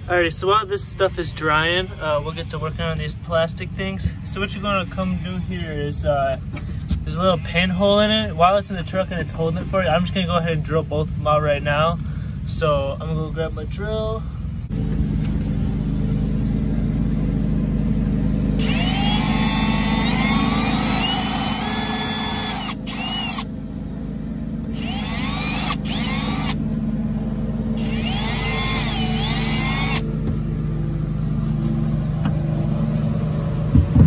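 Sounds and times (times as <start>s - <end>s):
steady low hum: 0.0s - 34.0s
cordless drill whining: 18.6s - 23.5s, 24.6s - 26.6s, 27.8s - 30.1s.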